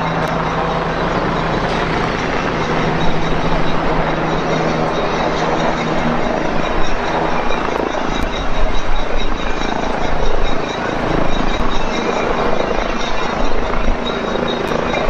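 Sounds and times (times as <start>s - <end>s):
helicopter rotor and engine: 0.0s - 15.0s
high turbine whine: 0.0s - 15.0s.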